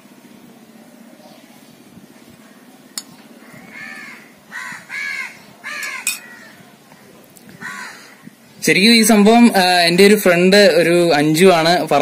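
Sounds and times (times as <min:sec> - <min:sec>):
crow cawing: 0:03.4 - 0:06.7, 0:07.5 - 0:08.3.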